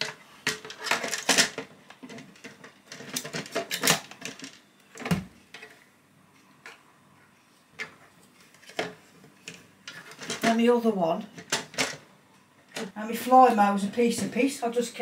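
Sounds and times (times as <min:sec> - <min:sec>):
plastic parts rattling and clicking: 0:00.0 - 0:05.8, 0:07.8 - 0:10.7, 0:11.3 - 0:12.1.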